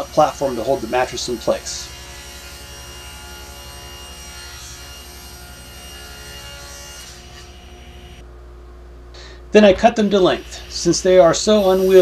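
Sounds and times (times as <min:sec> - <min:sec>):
table saw ripping a board: 0:00.0 - 0:07.9.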